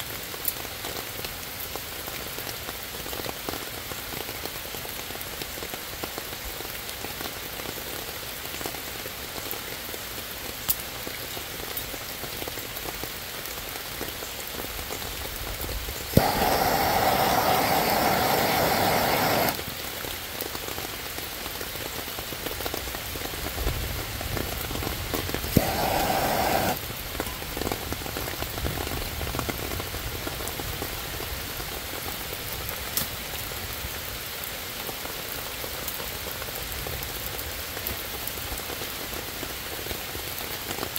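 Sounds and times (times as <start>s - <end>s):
rain on leaves and ground: 0.0s - 40.9s
gas torch hissing: 16.1s - 19.7s, 25.4s - 26.8s.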